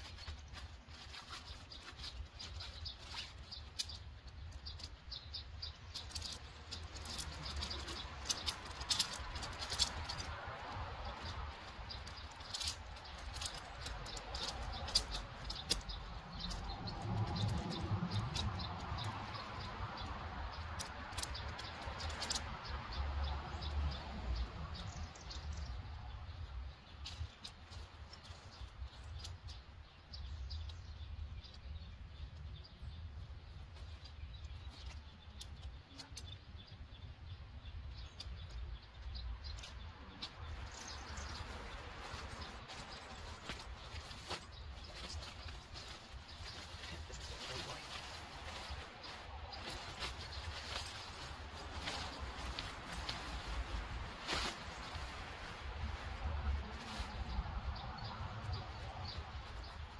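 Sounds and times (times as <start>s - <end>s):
rustling: 0.0s - 24.1s, 24.8s - 36.9s, 37.8s - 59.9s
tent pole sections clicking: 0.0s - 32.6s, 33.6s - 36.5s, 37.8s - 59.9s
tent poles clicking together: 5.8s - 22.8s.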